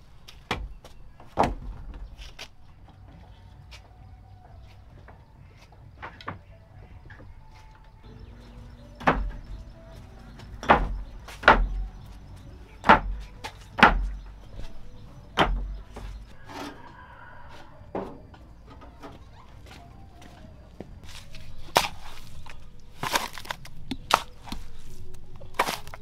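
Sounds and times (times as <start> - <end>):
hard knocks with dull thuds: 0.3 - 2.5, 8.0 - 16.7.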